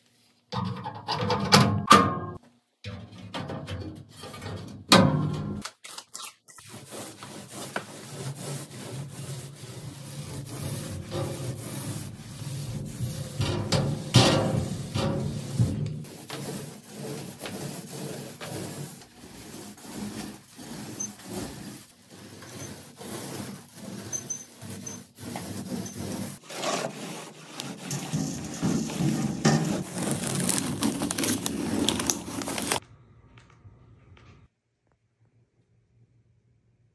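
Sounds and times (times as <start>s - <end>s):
paint roller rolling on wall: 6.6s - 32.8s
wall scraping and rubbing: 6.6s - 32.8s.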